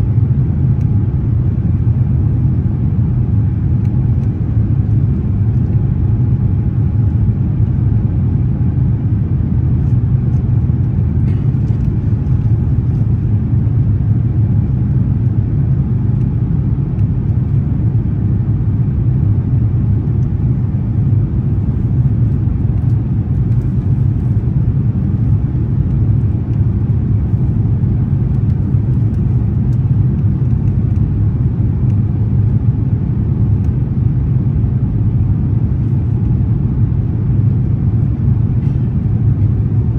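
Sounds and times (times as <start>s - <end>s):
jet airliner cabin rumble: 0.0s - 39.9s.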